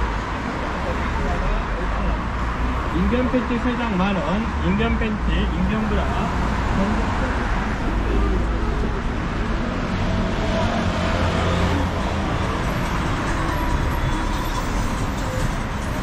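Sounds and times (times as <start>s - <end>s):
low traffic rumble: 0.0s - 16.0s
faint voices: 0.4s - 9.9s.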